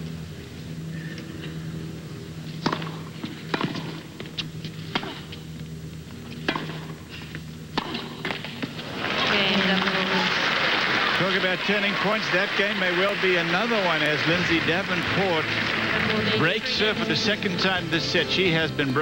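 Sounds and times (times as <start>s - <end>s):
low steady hum: 0.0s - 19.0s
ball bouncing: 2.6s - 5.4s, 6.4s - 7.0s, 7.7s - 8.8s
tennis ball hit by rackets: 2.6s - 5.4s, 6.3s - 7.0s, 7.7s - 8.8s.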